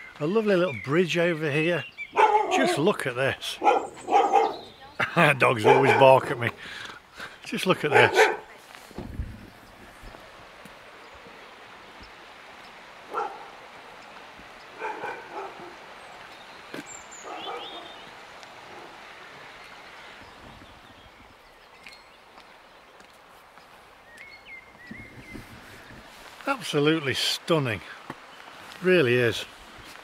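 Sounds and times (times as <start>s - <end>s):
dog barking: 2.2s - 2.9s, 3.6s - 4.8s, 5.6s - 6.5s, 7.9s - 8.5s, 13.1s - 13.6s, 14.8s - 15.8s, 17.2s - 18.0s.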